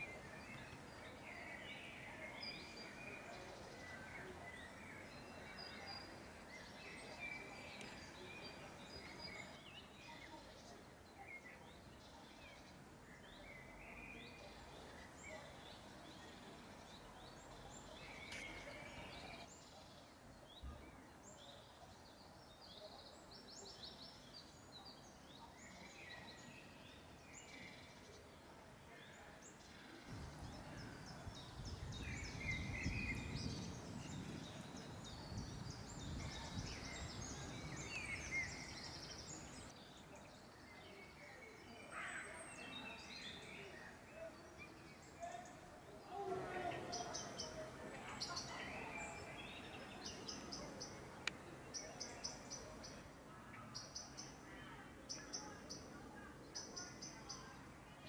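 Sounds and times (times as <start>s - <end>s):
songbirds chirping and trilling: 0.0s - 58.0s.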